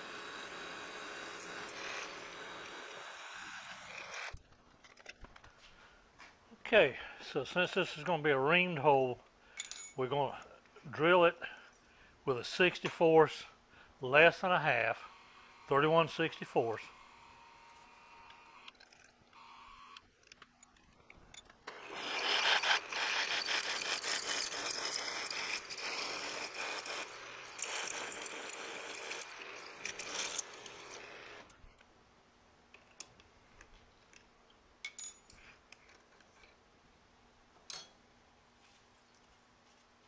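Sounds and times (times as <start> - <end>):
drill scraping into steel: 0.0 - 4.4, 21.7 - 31.5
metal chips clinking: 9.5 - 10.0, 34.8 - 35.4, 37.6 - 38.0.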